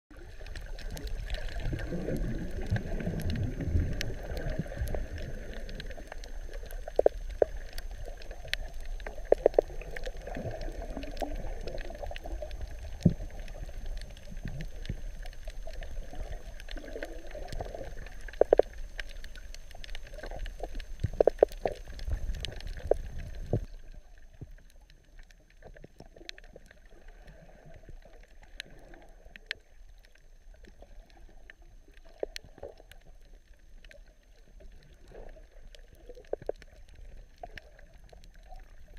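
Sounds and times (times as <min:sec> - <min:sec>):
underwater bubbling and gurgling: 0:00.1 - 0:38.9
sharp underwater clicks: 0:00.3 - 0:23.7.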